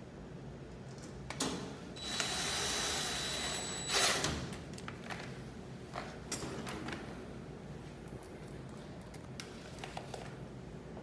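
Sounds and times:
cordless drill whining: 2.0s - 4.2s.

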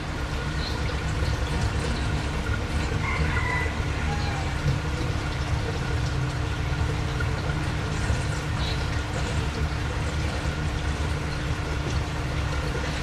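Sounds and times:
aquarium bubbling water: 0.0s - 13.0s
low motor hum: 0.0s - 13.0s.

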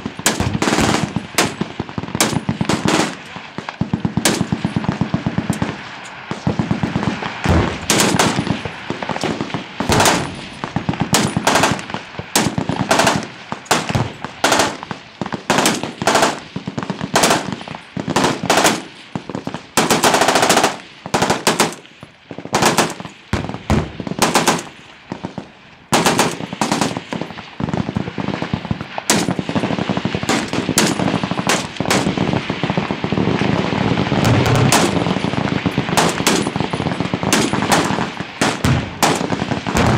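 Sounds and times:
automatic gunfire: 0.0s - 3.2s, 4.0s - 5.7s, 6.6s - 18.9s, 19.8s - 21.8s, 22.5s - 24.7s, 25.9s - 27.2s, 29.1s - 32.3s, 34.2s - 39.9s.

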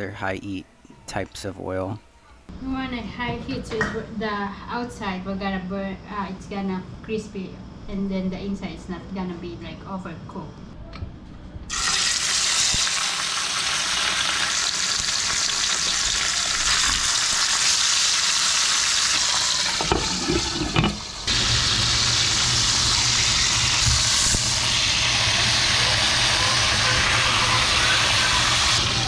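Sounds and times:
fish sizzling in oil: 11.7s - 29.0s.

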